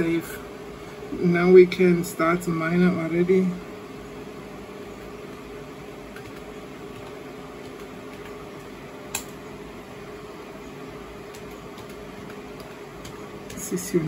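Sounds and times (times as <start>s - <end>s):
steady background hum: 0.0s - 14.0s
keyboard keys clicking: 11.3s - 13.7s.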